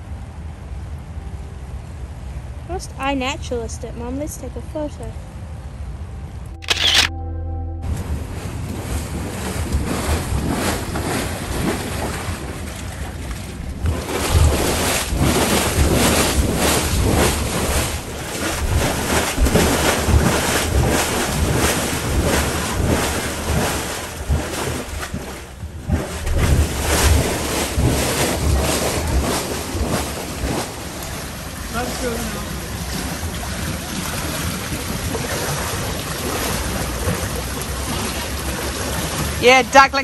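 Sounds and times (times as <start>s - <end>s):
wind buffeting microphone: 8.0s - 32.1s
water rushing through drain: 8.2s - 40.0s.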